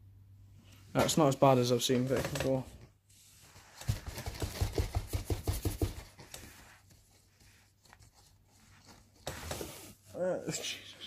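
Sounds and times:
plastic filter rubbed by hand: 3.1s - 10.1s.

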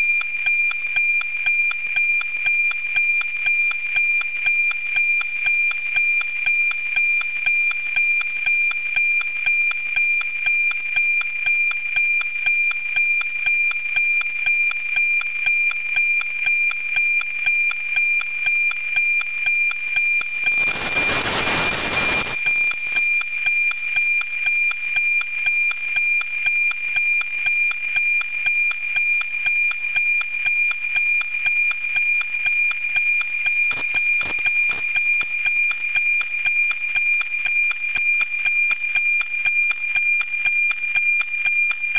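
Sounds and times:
steady high radio tone with ticking: 0.0s - 41.9s.

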